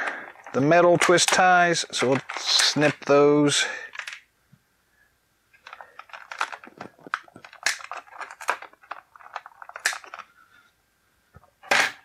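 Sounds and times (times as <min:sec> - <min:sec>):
plastic tray crackling: 0:00.0 - 0:03.2, 0:05.6 - 0:10.3.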